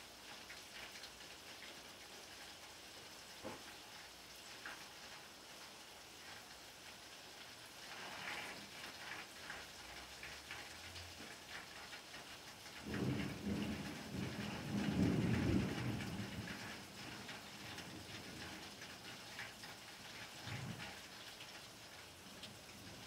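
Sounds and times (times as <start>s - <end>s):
rain on flat rooftops: 0.0s - 23.0s
thunder rumbling: 12.8s - 17.1s.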